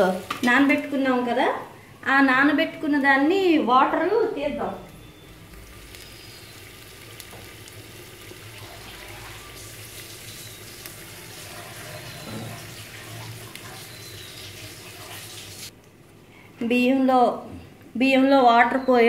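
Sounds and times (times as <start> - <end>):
paste sizzling in oil: 5.2 - 15.7.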